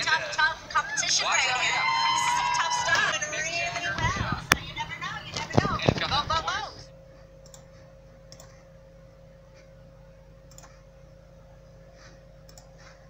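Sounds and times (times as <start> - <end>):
faint electrical hum: 0.0 - 13.0
computer mouse clicks: 7.4 - 7.7, 8.3 - 8.6, 10.5 - 10.8, 12.5 - 12.9.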